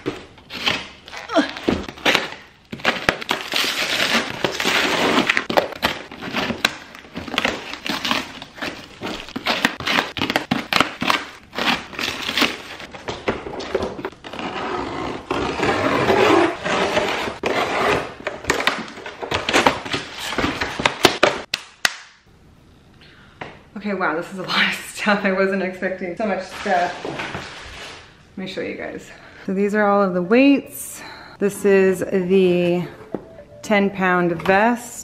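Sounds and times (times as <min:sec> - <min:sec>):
cardboard and plastic tearing: 0:00.0 - 0:21.4.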